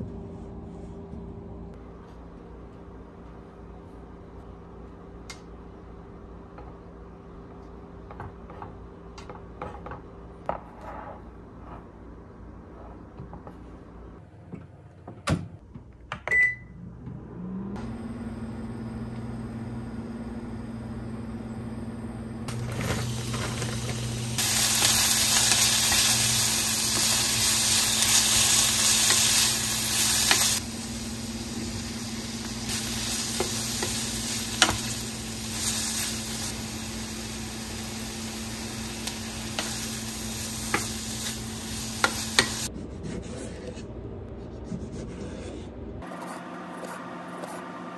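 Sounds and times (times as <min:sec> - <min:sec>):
oven hum: 0:00.0 - 0:47.9
oven beep: 0:16.2 - 0:16.9
vegetables sizzling in a frying pan: 0:22.5 - 0:42.7.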